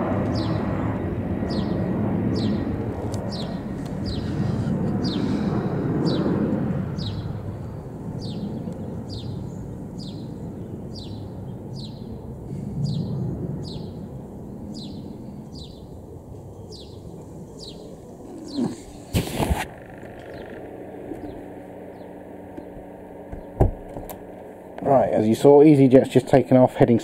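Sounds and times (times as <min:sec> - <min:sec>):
jet engines rumbling: 0:00.0 - 0:27.0
bird chirping: 0:01.5 - 0:02.7, 0:03.3 - 0:04.4, 0:07.0 - 0:12.2, 0:12.8 - 0:14.1, 0:14.7 - 0:19.1, 0:20.1 - 0:23.6.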